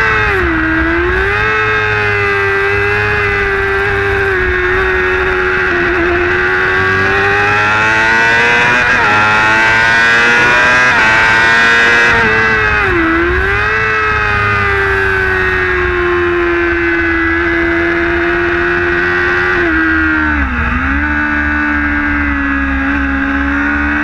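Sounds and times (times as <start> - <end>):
wind rush on microphone: 0.0 - 23.3
racing motorcycle engine revving: 0.0 - 24.0.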